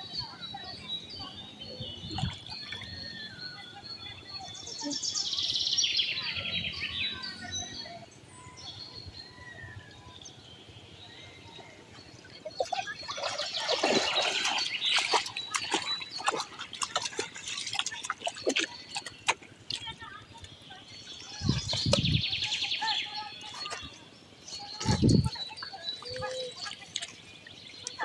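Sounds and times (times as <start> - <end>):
water splashing and sloshing: 2.0 - 3.0, 12.2 - 24.0, 24.7 - 28.0.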